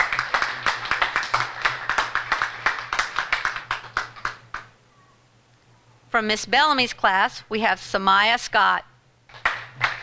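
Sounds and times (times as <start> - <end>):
audience applauding: 0.0 - 4.7, 9.3 - 10.0.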